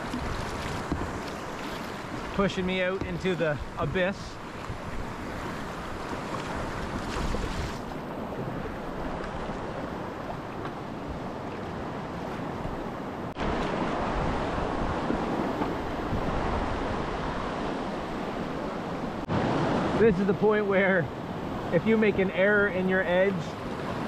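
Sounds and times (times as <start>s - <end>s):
wind on microphone: 11.0s - 20.0s.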